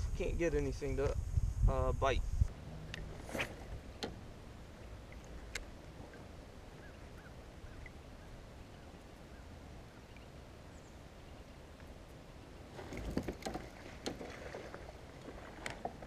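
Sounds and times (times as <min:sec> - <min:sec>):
faint outdoor background: 0:00.0 - 0:16.0
fishing rod swish: 0:03.0 - 0:03.8.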